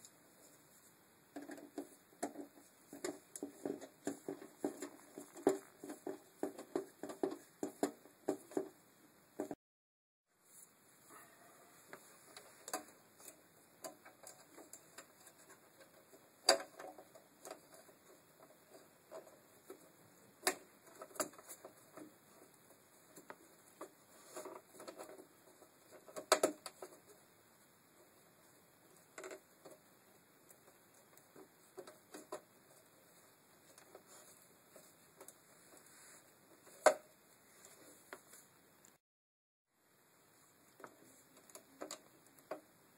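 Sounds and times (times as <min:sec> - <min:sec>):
small clicks and taps on metal: 0:11.9 - 0:22.5.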